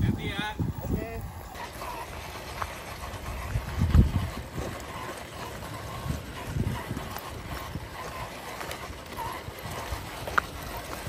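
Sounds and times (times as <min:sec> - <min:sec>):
rc car crawling over rock: 0:00.0 - 0:11.0
wind buffeting microphone: 0:00.0 - 0:11.0.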